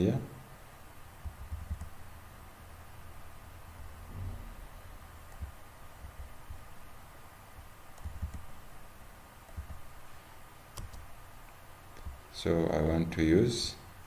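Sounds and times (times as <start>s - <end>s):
faint steady hum: 0.0s - 14.0s
computer mouse click: 10.7s - 11.0s.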